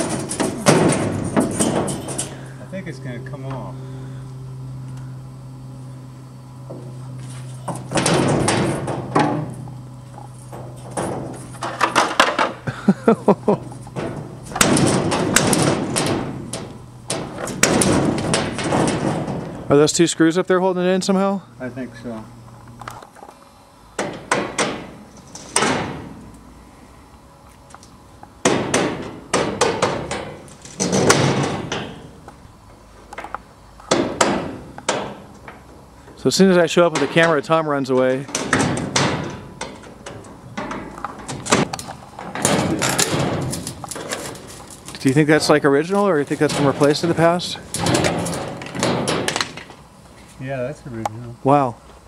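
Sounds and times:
metal panel clattering: 0.0 - 2.8, 7.6 - 12.6, 13.5 - 19.8, 28.5 - 32.2, 36.8 - 49.8
steel sheet clanking and scraping: 0.0 - 3.8, 7.2 - 12.4, 13.7 - 19.8, 28.6 - 32.2, 36.9 - 49.8.

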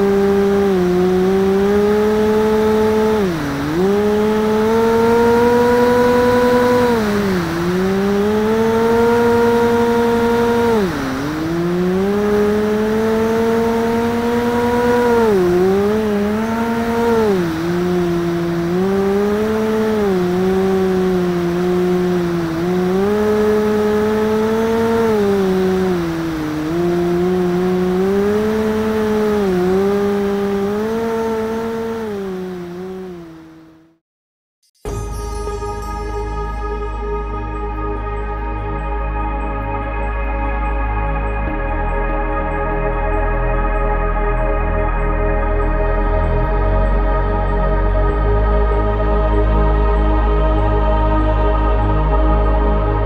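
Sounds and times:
electric motor and propeller humming: 0.0 - 34.0.

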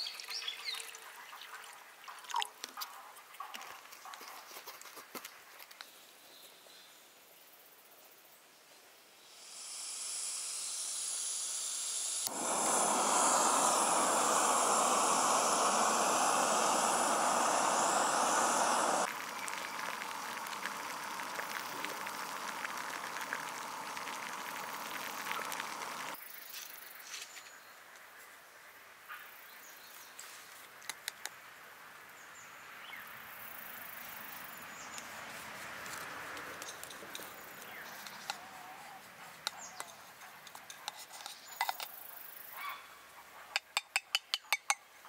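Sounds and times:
gas hissing from valve: 9.2 - 26.2
gas burner roaring: 9.3 - 26.2.

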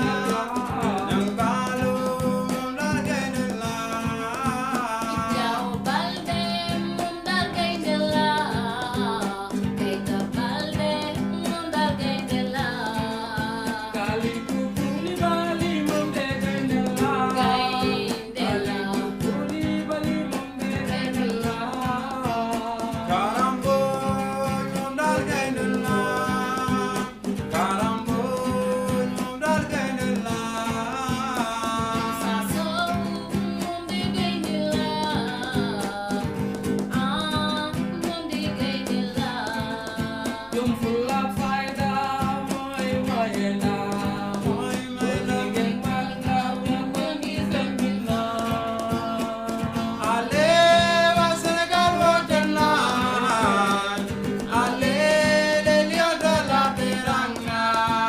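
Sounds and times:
acoustic guitar: 0.0 - 58.0
person singing: 0.0 - 58.0.

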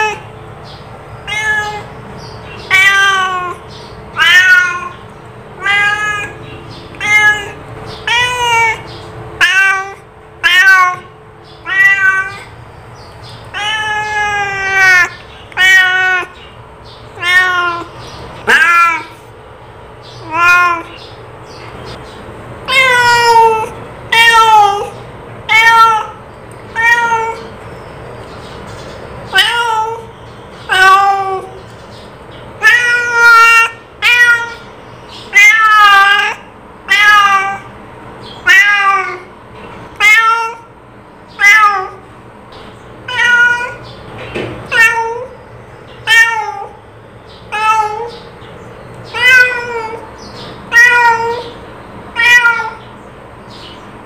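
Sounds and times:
cat meowing: 0.0 - 0.3, 1.2 - 12.6, 13.4 - 16.5, 17.1 - 19.3, 20.1 - 21.1, 22.6 - 27.5, 29.3 - 31.6, 32.6 - 37.7, 38.4 - 39.3, 39.9 - 42.1, 43.0 - 43.9, 44.6 - 45.4, 46.0 - 46.8, 47.5 - 48.3, 49.0 - 52.9.

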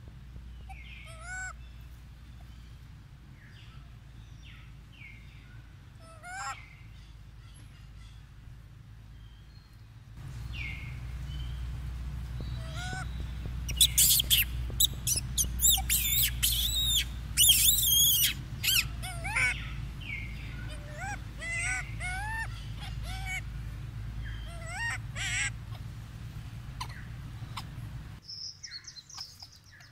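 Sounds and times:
steady low hum: 0.0 - 28.2
birds chirping: 0.0 - 29.9
whistled bird notes: 12.4 - 23.4.

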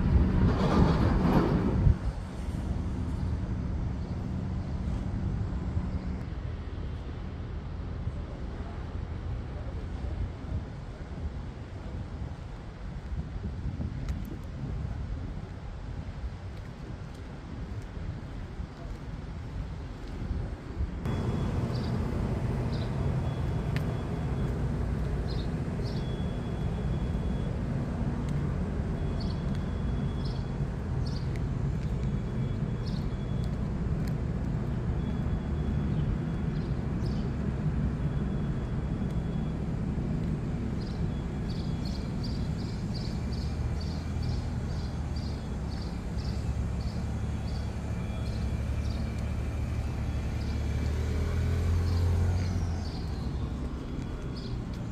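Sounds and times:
motor humming: 21.1 - 27.0.

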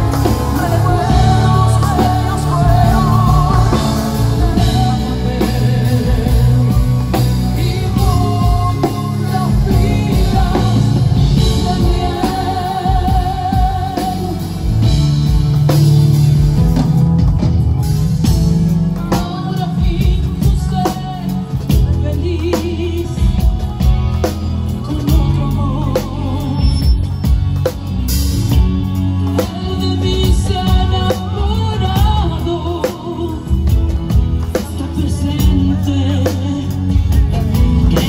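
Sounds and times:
woman singing with vibrato: 0.0 - 14.8, 29.4 - 33.8
bass line: 0.0 - 38.0
drums: 0.0 - 38.0
instrumental accompaniment: 0.0 - 38.0.

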